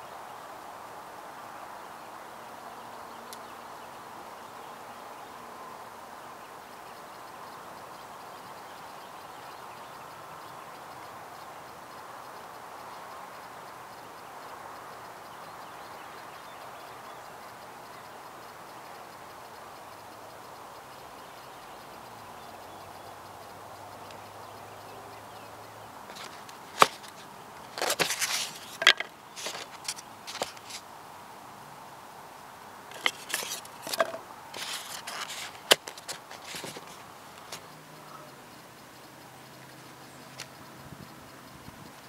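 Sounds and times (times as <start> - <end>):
outdoor background noise: 0.0 - 42.0
sharp clicks and knocks: 26.1 - 30.8, 32.9 - 37.7
short rustling scrapes: 26.1 - 30.8, 32.9 - 37.0.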